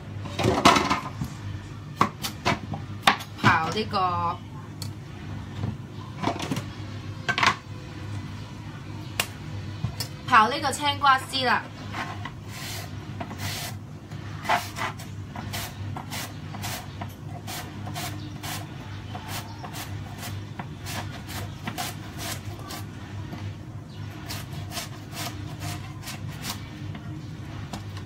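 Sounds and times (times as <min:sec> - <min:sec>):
cucumber rasping on slicer blade: 0:14.4 - 0:22.9, 0:24.2 - 0:26.6.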